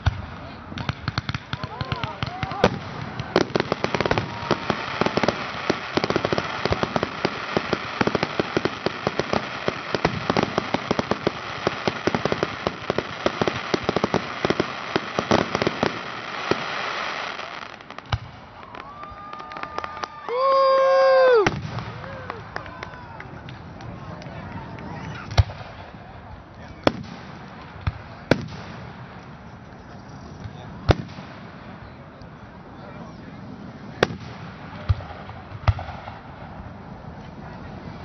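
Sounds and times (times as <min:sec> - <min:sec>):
fireworks crackling pops: 0:00.0 - 0:32.4, 0:33.9 - 0:37.6.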